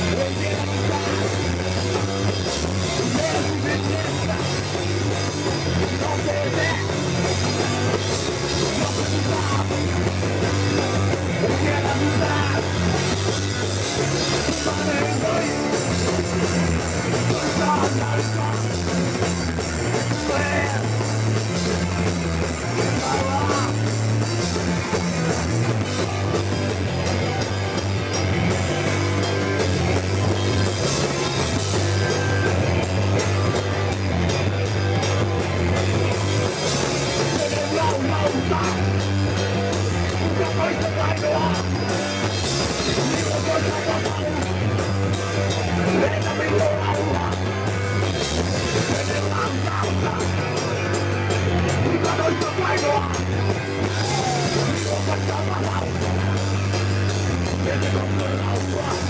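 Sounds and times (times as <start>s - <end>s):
punk band playing live: 0.0s - 59.0s.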